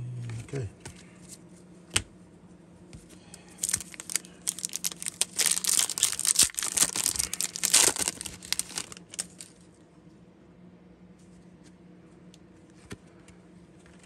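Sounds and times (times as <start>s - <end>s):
foil wrapper tearing and crinkling: 3.6s - 9.6s.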